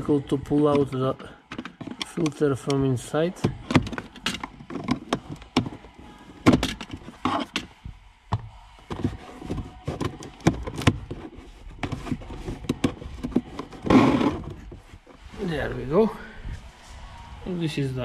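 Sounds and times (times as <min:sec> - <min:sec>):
plastic clicks and scrapes: 0:00.7 - 0:02.8, 0:03.4 - 0:07.8, 0:08.8 - 0:15.2.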